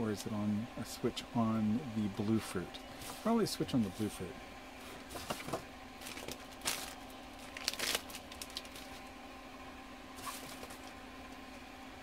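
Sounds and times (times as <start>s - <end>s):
plastic bags rustling and crinkling: 4.8s - 9.1s, 10.2s - 11.0s.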